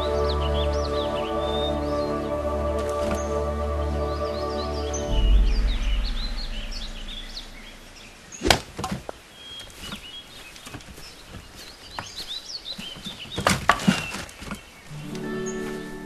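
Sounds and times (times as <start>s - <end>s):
birds chirping: 0.0s - 16.0s
wooden planks clattering: 12.8s - 14.8s.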